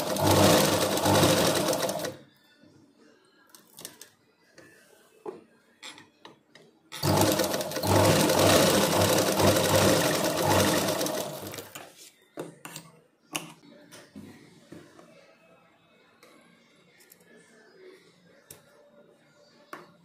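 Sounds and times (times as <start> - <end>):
sewing machine running: 0.0 - 2.2, 7.0 - 11.8.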